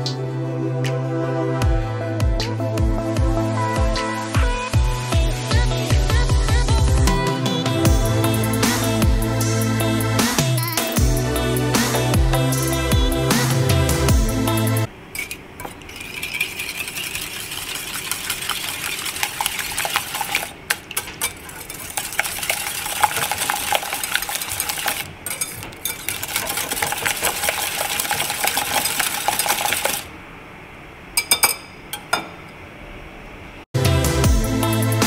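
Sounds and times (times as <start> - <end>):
wire whisk clinking against glass bowl: 15.2 - 30.0.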